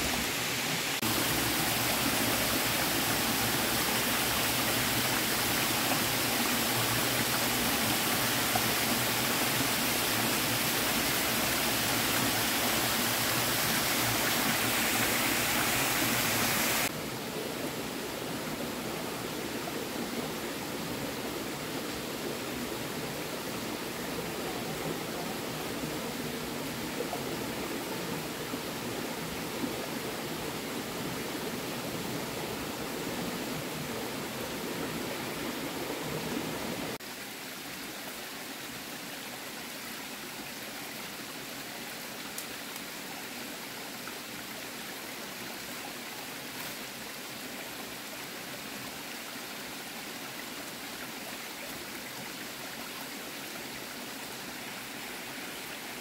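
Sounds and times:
stream water rushing: 0.0s - 56.0s.

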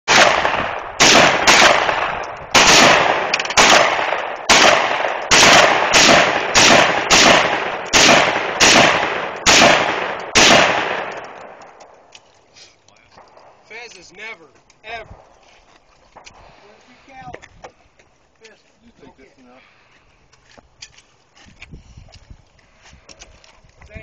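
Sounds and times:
rifle shots with ringing echo: 0.1s - 12.1s.

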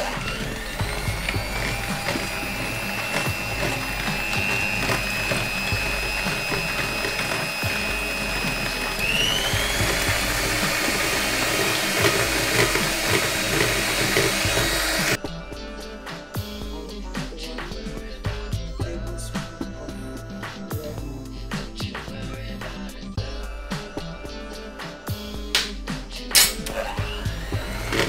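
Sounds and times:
electric hand mixer whipping cream: 0.0s - 15.2s, 26.7s - 28.0s.

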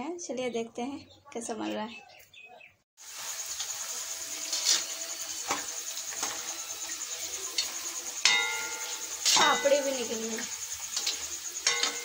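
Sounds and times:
food sizzling in hot oil: 3.0s - 12.0s
metal ladle knocking on pan: 7.6s - 10.0s, 11.0s - 12.0s
ringing clink: 8.3s - 9.8s.

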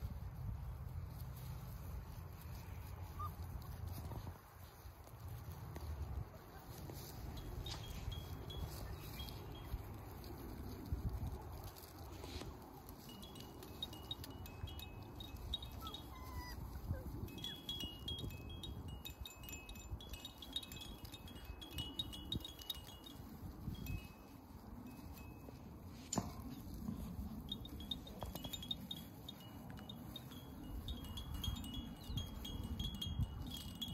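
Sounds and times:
faint high chiming: 17.4s - 33.9s.

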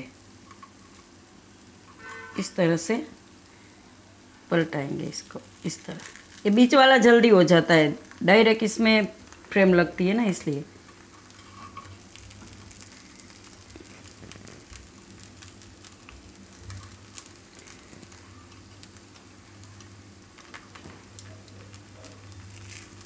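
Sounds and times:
dumplings sizzling in a pan: 0.0s - 23.0s
low steady hum: 0.0s - 23.0s
light knocks of turning dumplings: 10.3s - 23.0s.

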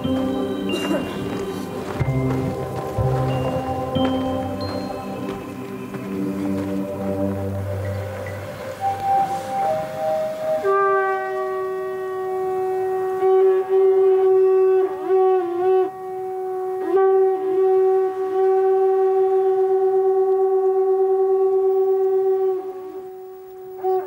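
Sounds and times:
conch-shell trumpet note: 8.6s - 24.0s.

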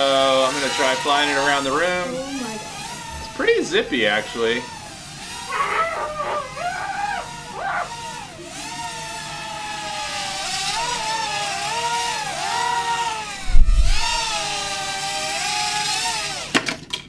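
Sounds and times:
drone propellers whining: 0.0s - 14.9s
dull low thump: 13.4s - 14.4s.

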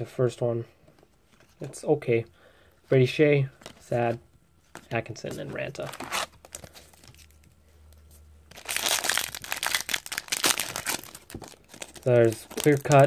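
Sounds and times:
faint rustles of card handling: 0.7s - 9.5s, 10.2s - 13.0s
wrapper tearing and crinkling: 8.5s - 13.0s.

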